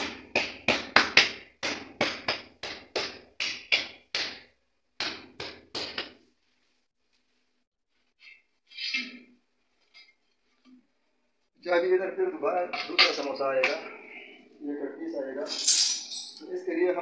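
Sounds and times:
hand slapping ceramic tile: 0.0 - 6.2.

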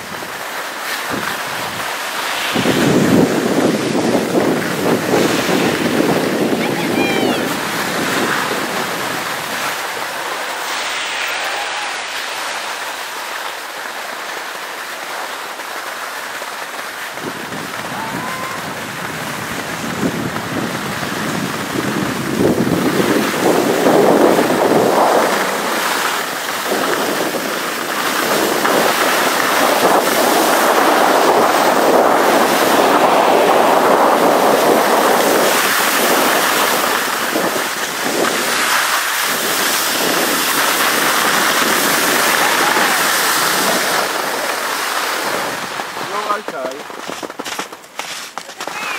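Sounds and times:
skis scraping over snow: 0.0 - 48.9
air rushing past microphone: 1.0 - 13.4.

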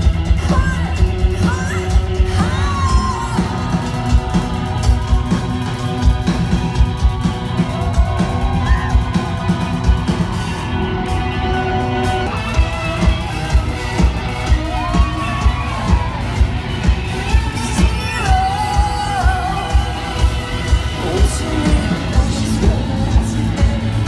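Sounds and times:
live rock band playing: 0.0 - 24.0
woman singing and yelling: 0.4 - 3.6, 17.2 - 20.0.

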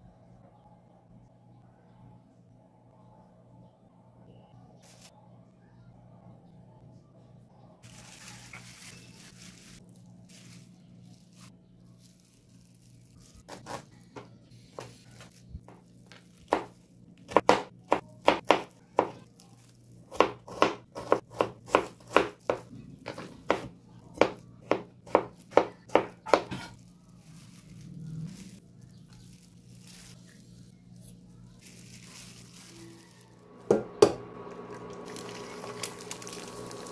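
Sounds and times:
low steady hum: 0.0 - 36.9
knife chopping on cutting board: 17.3 - 19.2, 20.1 - 26.7.

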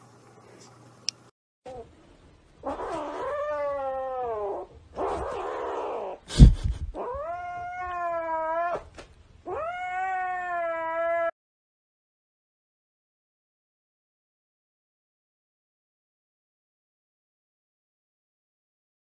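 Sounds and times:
kitten yowling: 2.6 - 6.2, 6.9 - 8.9, 9.5 - 11.4.

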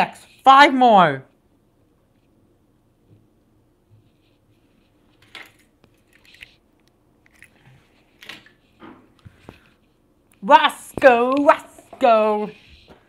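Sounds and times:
faint clicks and rustles: 3.9 - 13.0.

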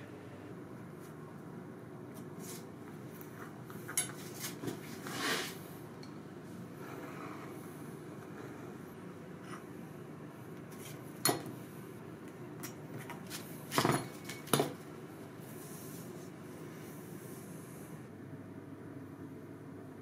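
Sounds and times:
steady low hum: 0.0 - 20.0.

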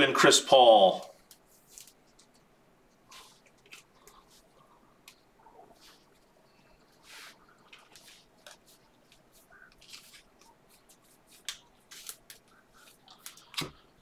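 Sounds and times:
cards sliding rasps and flicks: 7.1 - 13.8.

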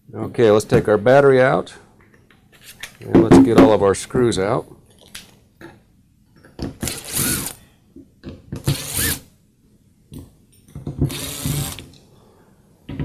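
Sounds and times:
cordless driver whining: 6.9 - 7.5, 8.7 - 9.2.

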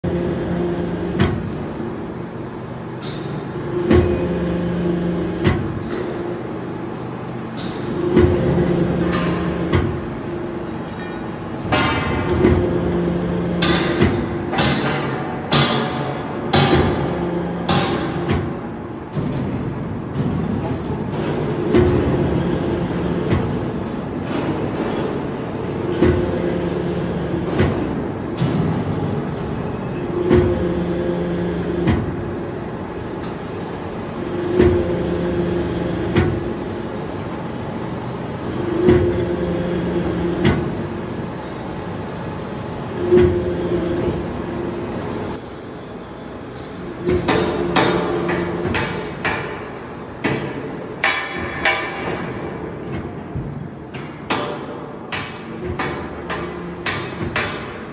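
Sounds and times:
machine running noise: 0.0 - 57.9
machine knocks: 3.8 - 4.4, 7.6 - 10.1, 11.6 - 22.4, 25.9 - 26.5, 30.2 - 30.8, 31.8 - 32.2, 34.3 - 35.2, 38.7 - 39.3, 43.0 - 44.3, 47.0 - 57.9.

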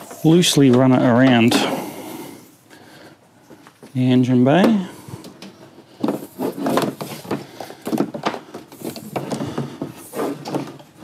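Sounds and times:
cable rubbing and scraping: 6.0 - 7.4, 8.7 - 11.0.

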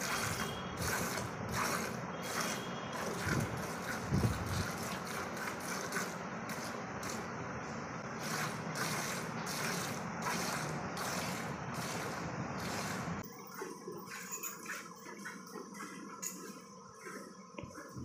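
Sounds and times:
milk squirting into a bucket: 0.0 - 7.2.

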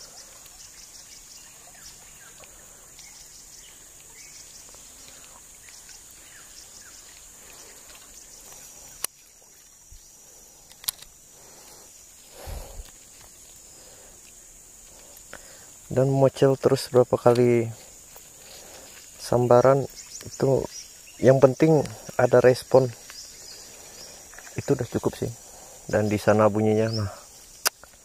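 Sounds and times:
insects chirring: 0.0 - 28.0
sharp clicks: 10.6 - 11.2, 27.6 - 27.9.

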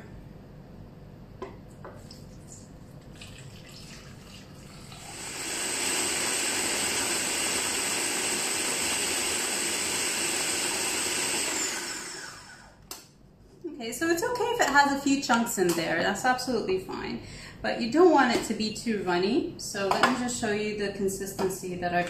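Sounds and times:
water pouring into bowl: 2.0 - 5.2
food processor motor whining: 5.0 - 12.8.

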